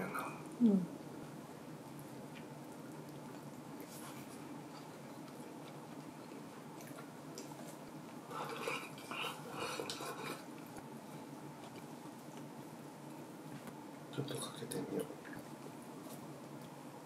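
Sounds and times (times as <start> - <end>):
quiet chewing: 0.3 - 13.8.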